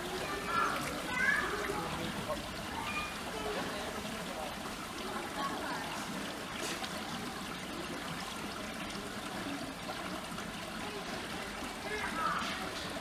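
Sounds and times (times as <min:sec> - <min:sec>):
water trickling: 0:00.0 - 0:13.0.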